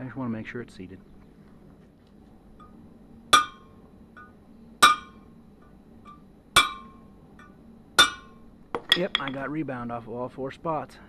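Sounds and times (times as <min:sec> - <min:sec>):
hammer tapping metal punch: 0:03.4 - 0:05.2, 0:06.1 - 0:09.5.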